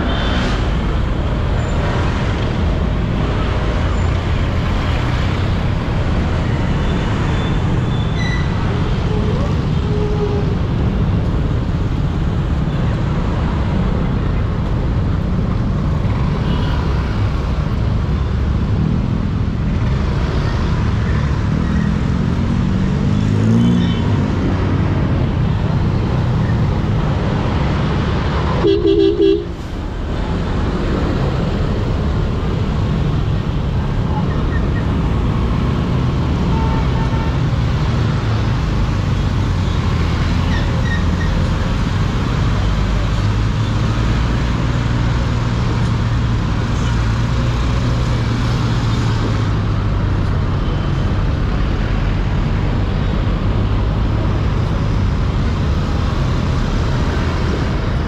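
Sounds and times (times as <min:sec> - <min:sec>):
traffic noise: 0:00.0 - 0:58.0
horn beep: 0:28.6 - 0:29.6.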